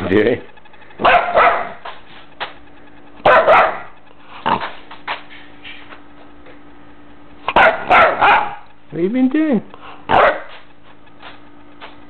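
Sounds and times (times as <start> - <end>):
puppy barking: 1.0 - 1.8, 3.2 - 4.8, 7.5 - 8.7, 10.1 - 10.6.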